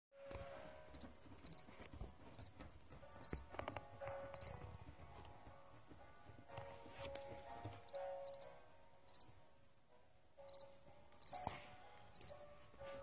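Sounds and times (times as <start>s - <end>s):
crickets chirping: 9.1s - 9.3s, 10.5s - 11.4s.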